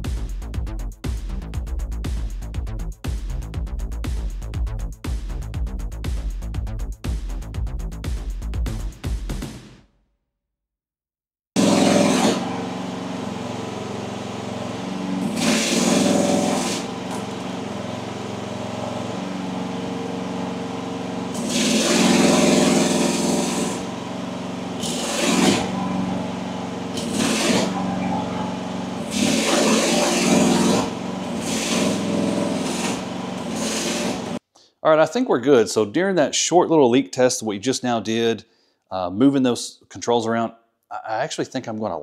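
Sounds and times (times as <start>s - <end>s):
excavator engine running: 11.6s - 34.4s
hydraulics loading up: 11.6s - 34.4s.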